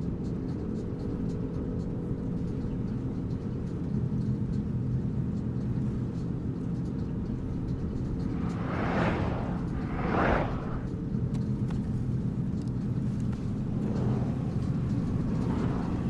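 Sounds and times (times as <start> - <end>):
car engine and road rumble: 0.0 - 16.0
low steady hum: 2.4 - 16.0.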